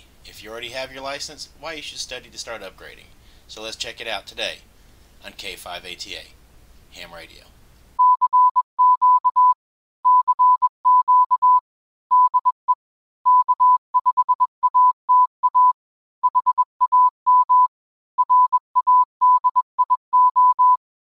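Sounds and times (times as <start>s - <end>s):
morse code beeps: 8.0s - 12.6s, 13.3s - 20.8s.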